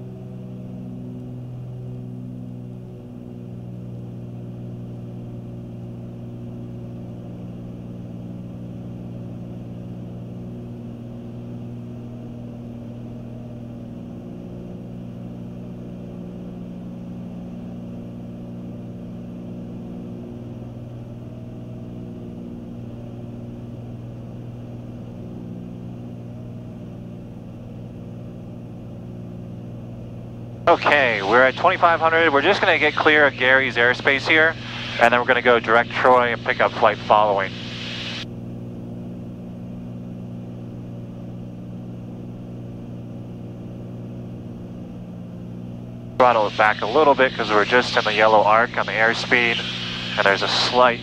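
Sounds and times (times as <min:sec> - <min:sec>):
airplane cabin engine drone: 0:00.0 - 0:51.0
faint high drifting tone: 0:30.7 - 0:38.2, 0:46.2 - 0:51.0.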